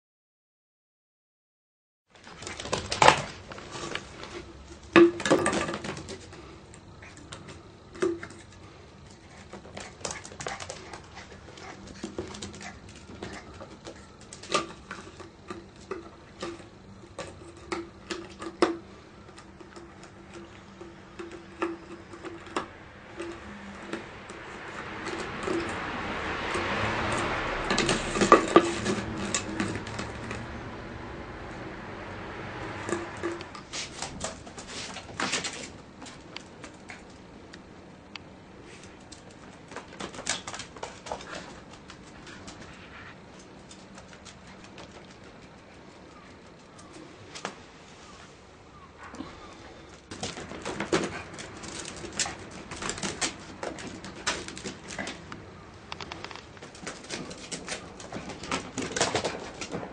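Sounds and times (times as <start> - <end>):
plastic bottle clattering on floor: 4.9 - 6.2
broad rushing noise: 22.6 - 35.5.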